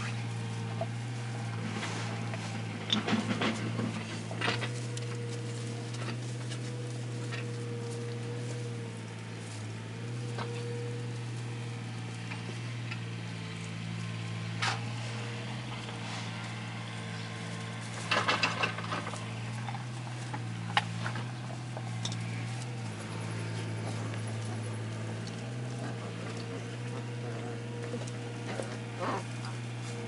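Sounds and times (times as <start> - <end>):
low hum: 0.0 - 30.0
straw bedding crackling: 0.0 - 30.0.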